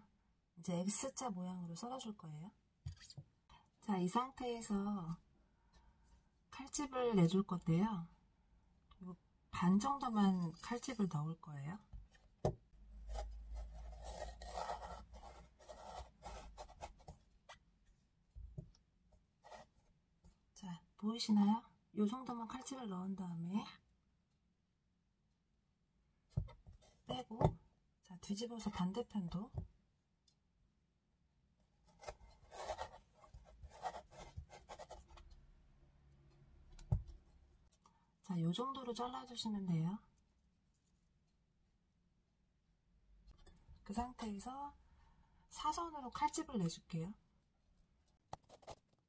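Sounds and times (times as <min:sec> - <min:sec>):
knife scoring radish: 0:12.9 - 0:17.1.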